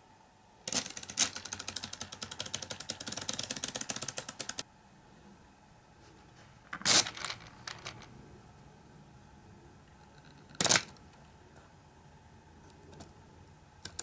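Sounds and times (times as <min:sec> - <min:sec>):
plastic gears clicking: 0:00.7 - 0:04.6.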